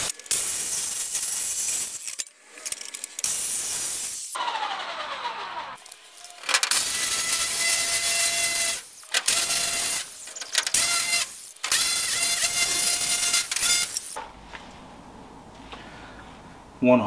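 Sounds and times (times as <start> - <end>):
jigsaw cutting plastic sheet: 4.4 - 14.1.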